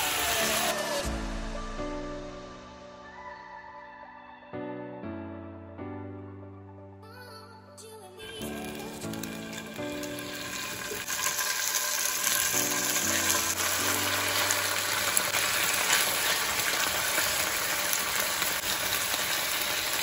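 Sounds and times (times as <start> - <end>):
chicken sizzling in hot oil: 0.0 - 1.2, 8.4 - 20.0.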